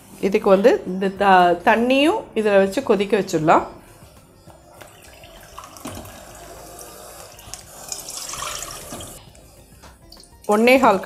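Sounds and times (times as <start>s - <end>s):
water pouring into measuring cup: 4.8s - 9.2s
water pouring into metal pot: 4.8s - 9.2s.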